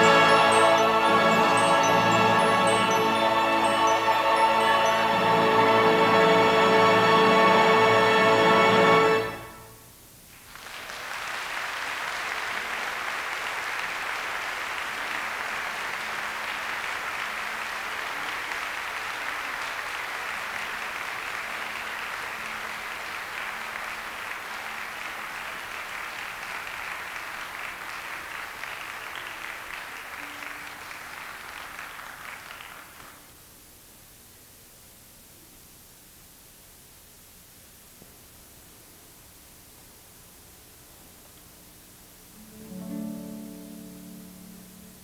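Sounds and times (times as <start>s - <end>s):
audience applauding: 0.0s - 5.7s, 10.4s - 33.4s.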